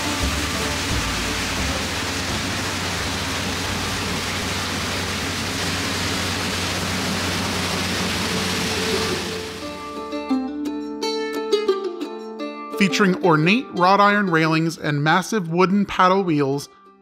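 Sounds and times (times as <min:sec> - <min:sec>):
paddle wheel churning water: 0:00.0 - 0:10.1.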